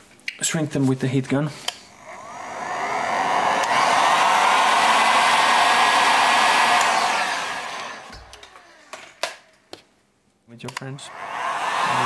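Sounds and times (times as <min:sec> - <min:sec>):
heat gun blowing air: 0:02.0 - 0:09.2.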